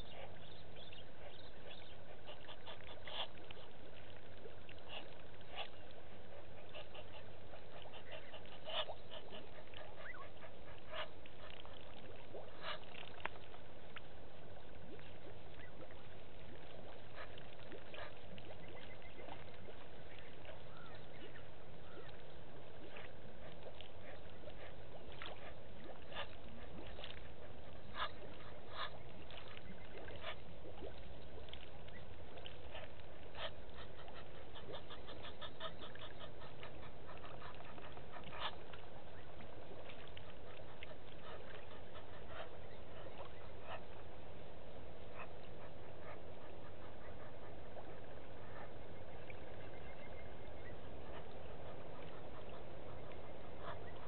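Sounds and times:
steady background hiss: 0:00.0 - 0:54.0.

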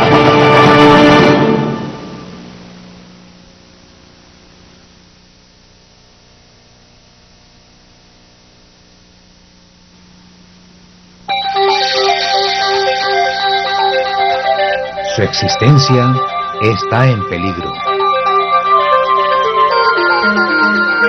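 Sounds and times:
music: 0:00.0 - 0:02.6, 0:11.3 - 0:21.0
steady low hum: 0:01.3 - 0:11.4
music with ringing tones: 0:11.3 - 0:21.0.

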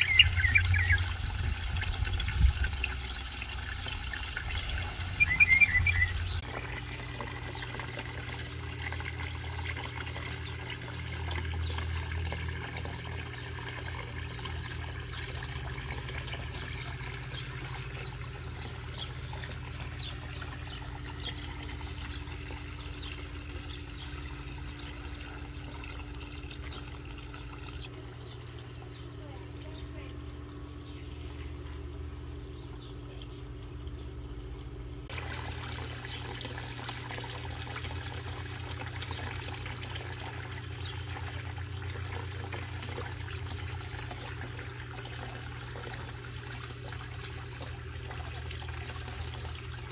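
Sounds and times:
bird chirping: 0:00.0 - 0:01.2, 0:04.4 - 0:06.4
waterfall pouring into pond: 0:00.0 - 0:28.1, 0:34.2 - 0:49.9
faint steady hum: 0:00.0 - 0:49.9.

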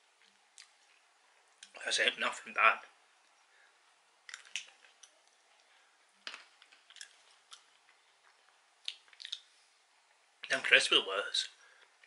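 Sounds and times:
peanuts being chewed: 0:00.2 - 0:01.8, 0:04.2 - 0:09.6.

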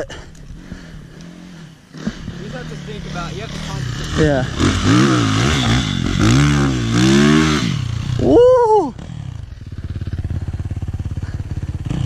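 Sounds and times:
dirt bike revving and idling: 0:00.0 - 0:12.0
person shouting woo: 0:08.2 - 0:09.0.

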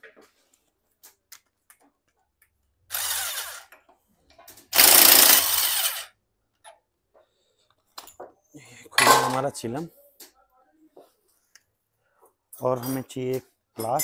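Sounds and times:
impact wrench bursts: 0:02.9 - 0:03.7, 0:04.7 - 0:06.1.

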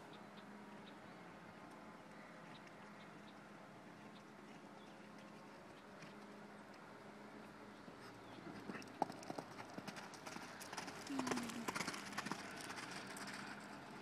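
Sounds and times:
hooves on gravel cantering: 0:08.0 - 0:14.0.

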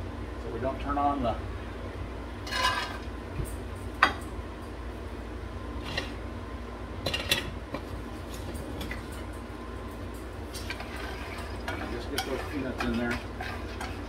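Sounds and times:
range-hood fan humming: 0:00.0 - 0:14.0
kitchen utensils rattling: 0:10.6 - 0:14.0.

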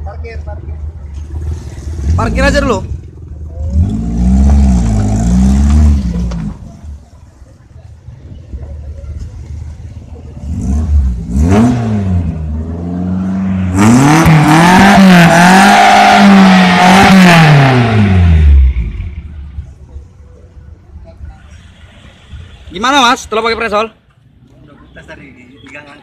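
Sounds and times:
small petrol engine revving: 0:10.4 - 0:19.0.

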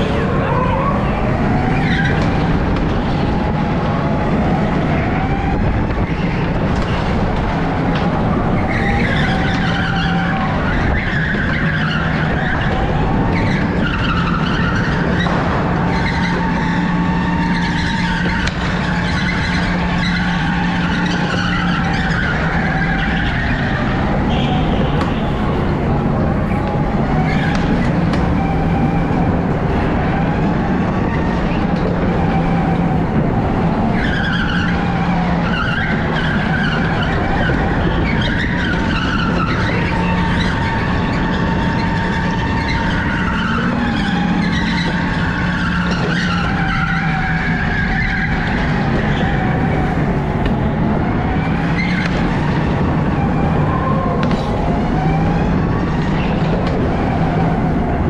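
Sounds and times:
tyres squealing: 0:00.0 - 0:03.5, 0:04.4 - 0:58.0
electric kart motor tone: 0:00.0 - 0:58.0.

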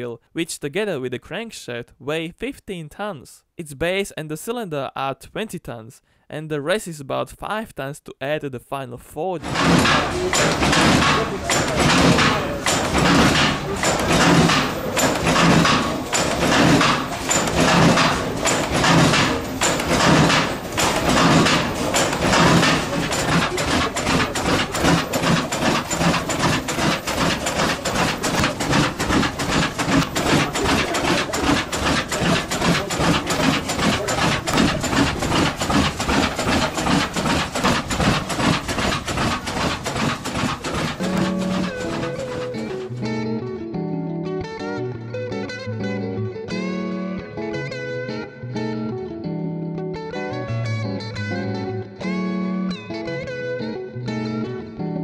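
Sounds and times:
engine knocking and clattering: 0:09.4 - 0:42.9.

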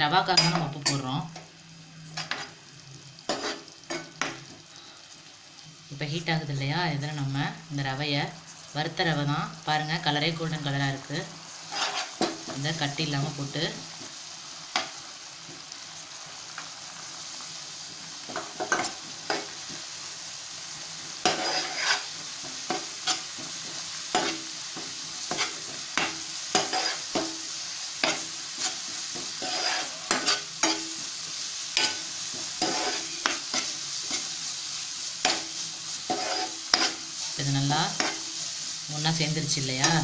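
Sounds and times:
onion mixture sizzling in a pan: 0:00.0 - 0:40.0
spatula scraping and tapping pan: 0:02.2 - 0:02.6, 0:03.3 - 0:04.5, 0:11.7 - 0:12.6, 0:18.3 - 0:19.8, 0:21.2 - 0:31.1, 0:31.8 - 0:34.4, 0:35.2 - 0:37.1, 0:37.9 - 0:38.3.

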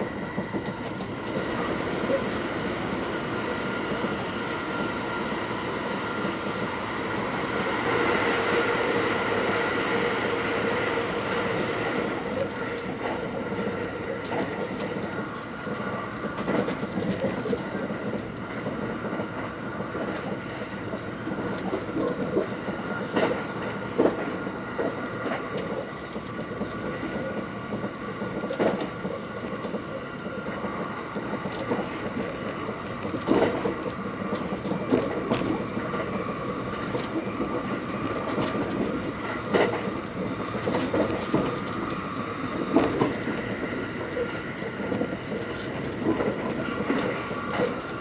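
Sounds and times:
train rumble and rushing: 0:00.0 - 0:48.0.

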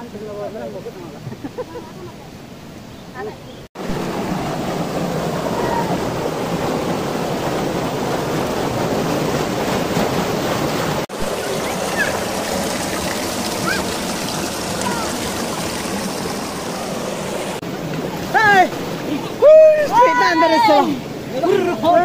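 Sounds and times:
river rushing over rocks: 0:03.8 - 0:22.0.

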